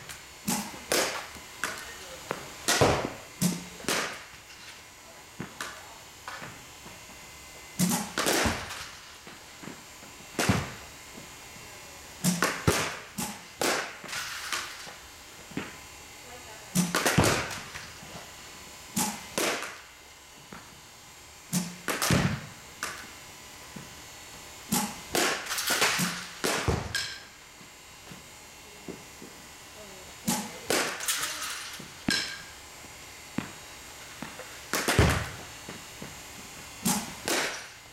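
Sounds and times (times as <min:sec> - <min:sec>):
bats hitting balls: 0:00.4 - 0:04.8, 0:07.8 - 0:10.9, 0:12.2 - 0:15.8, 0:16.7 - 0:18.2, 0:18.9 - 0:19.9, 0:21.5 - 0:23.1, 0:24.7 - 0:27.4, 0:30.2 - 0:32.6, 0:33.4 - 0:37.9
bat hitting softball: 0:24.7 - 0:27.2, 0:34.2 - 0:35.4, 0:36.8 - 0:37.8.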